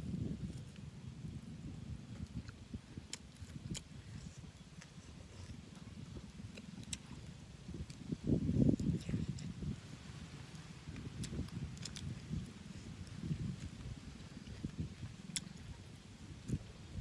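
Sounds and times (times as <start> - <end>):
person chewing meat: 2.1 - 9.6, 10.5 - 15.8.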